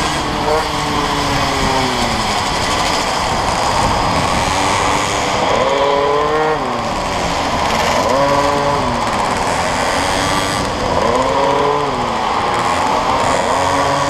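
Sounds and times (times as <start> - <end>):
motorcycle engines revving: 0.0 - 14.0.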